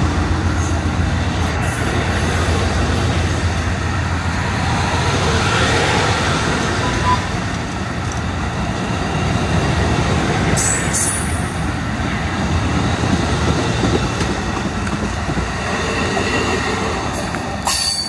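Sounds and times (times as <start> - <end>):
train wheels rumbling on rail: 0.0 - 18.0
high wheel squeal: 17.1 - 18.0.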